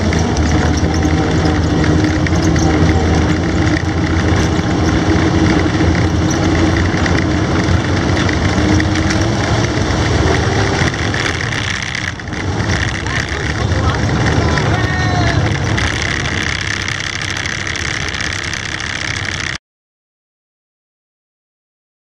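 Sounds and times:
tracked vehicle engine running: 0.0s - 19.6s.

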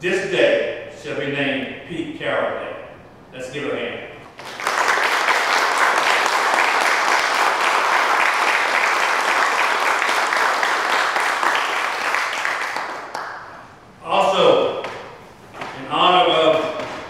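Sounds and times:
audience applauding: 4.4s - 13.5s.

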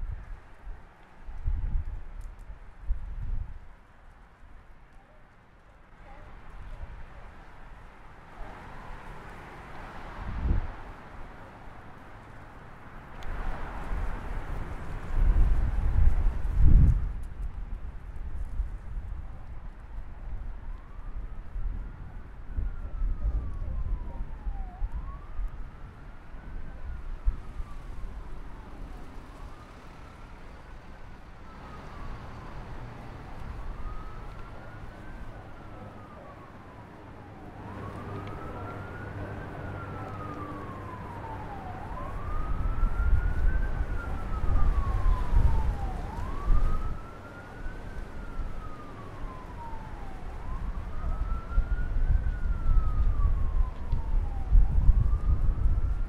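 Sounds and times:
wind buffeting microphone: 0.0s - 3.8s, 6.3s - 11.4s, 13.2s - 56.0s
siren wailing: 20.6s - 56.0s.

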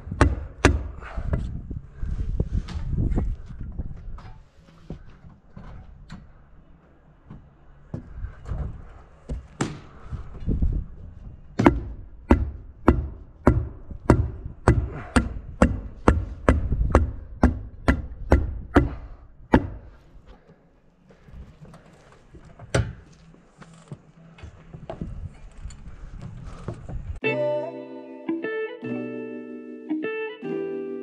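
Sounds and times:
hammer striking wood: 0.1s - 1.0s, 11.6s - 19.9s.

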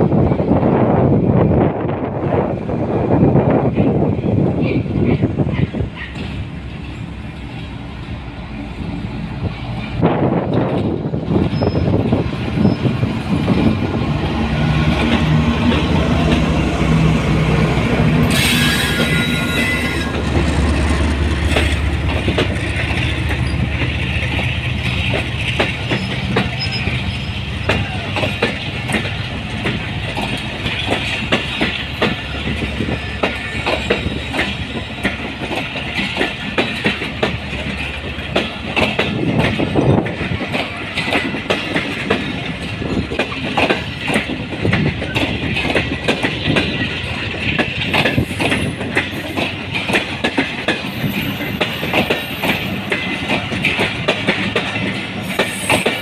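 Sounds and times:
train rumble: 0.0s - 56.0s
train wheels clattering over joints: 9.7s - 56.0s
high hiss of wheels on rail: 12.5s - 22.1s, 48.0s - 56.0s.

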